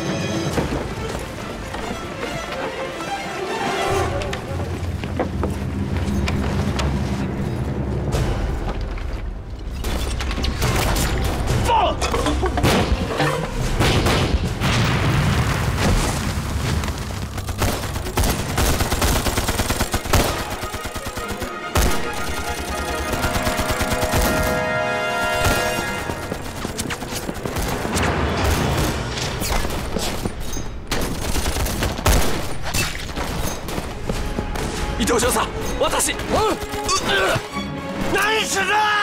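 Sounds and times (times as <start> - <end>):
dramatic film score: 0.0 - 39.0
rifle and machine-gun fire: 17.1 - 29.1, 30.9 - 32.6.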